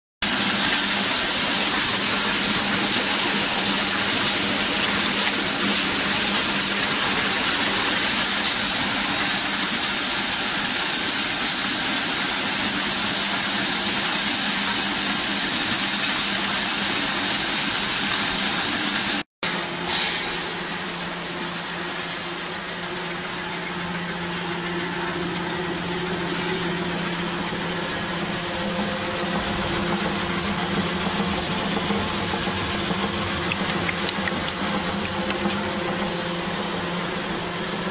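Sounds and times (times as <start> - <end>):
machinery hissing and humming: 0.2 - 37.9.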